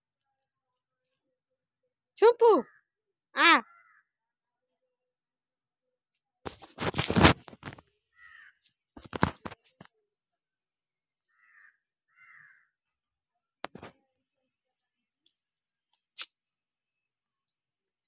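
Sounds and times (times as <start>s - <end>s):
crows cawing: 3.6s - 4.1s, 8.1s - 8.6s, 11.3s - 12.7s.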